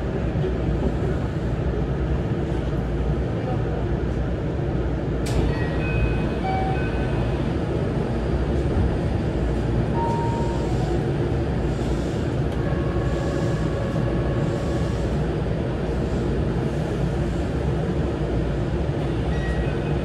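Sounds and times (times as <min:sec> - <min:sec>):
train hum and hiss: 0:00.0 - 0:20.0.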